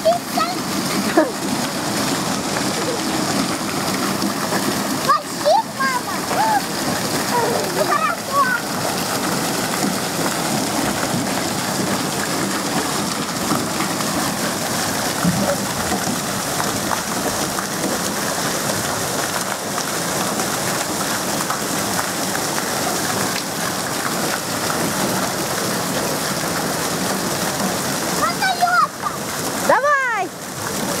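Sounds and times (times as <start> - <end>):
water splashing from water features: 0.0 - 31.0.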